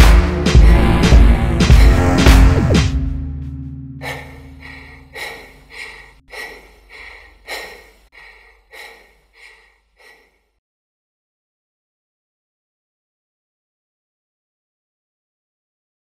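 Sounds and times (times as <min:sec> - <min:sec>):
low music: 0:00.0 - 0:07.2
man panting: 0:01.7 - 0:02.7, 0:04.0 - 0:10.6.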